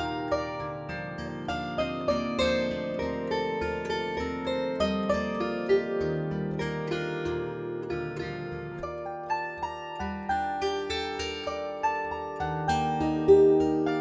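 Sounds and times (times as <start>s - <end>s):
plucked string notes ringing: 0.0s - 14.0s.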